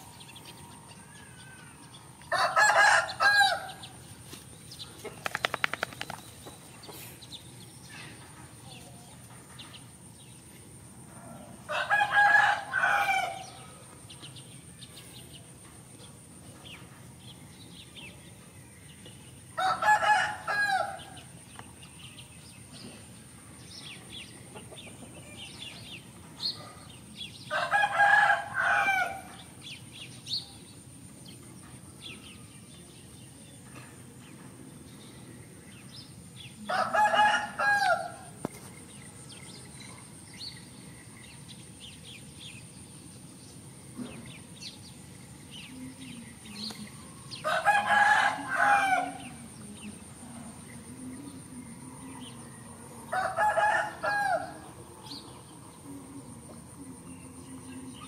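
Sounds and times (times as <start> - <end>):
rooster crowing: 0.7 - 3.9, 11.2 - 13.6, 19.6 - 21.2, 27.5 - 29.4, 36.6 - 38.3, 47.4 - 49.4, 53.0 - 54.7.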